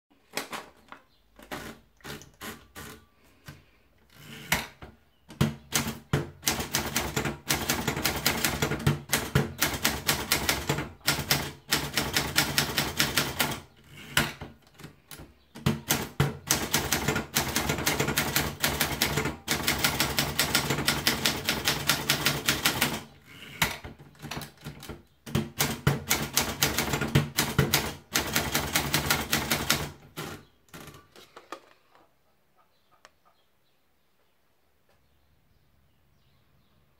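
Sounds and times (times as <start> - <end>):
fast typewriter typing: 5.3 - 15.0, 15.6 - 31.0.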